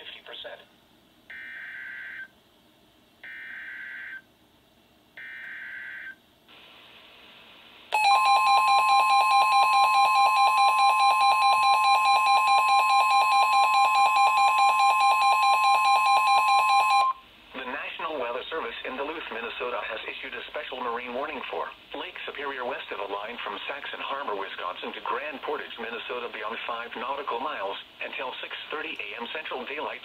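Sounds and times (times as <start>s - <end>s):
loud steady high alarm tone: 7.9s - 17.2s.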